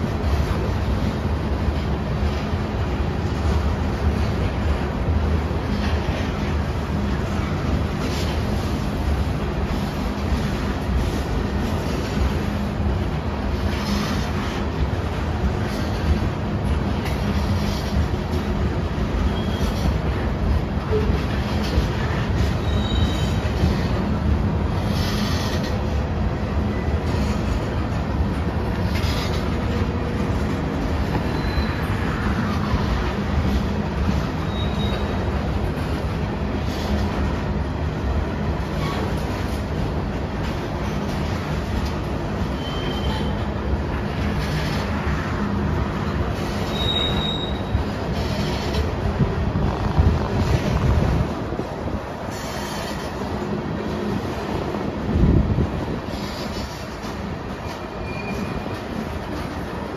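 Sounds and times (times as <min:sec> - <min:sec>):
freight train wheels rumbling: 0:00.0 - 0:59.9
faint high wheel squeal: 0:19.2 - 0:20.0, 0:22.4 - 0:23.7, 0:31.1 - 0:32.6, 0:34.1 - 0:35.4, 0:42.4 - 0:43.5, 0:46.4 - 0:48.8, 0:57.6 - 0:59.0.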